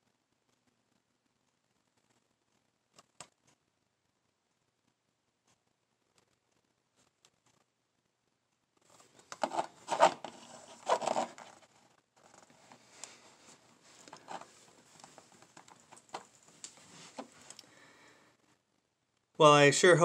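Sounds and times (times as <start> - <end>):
plastic blister pack crinkling: 8.9 - 11.6, 12.2 - 17.8.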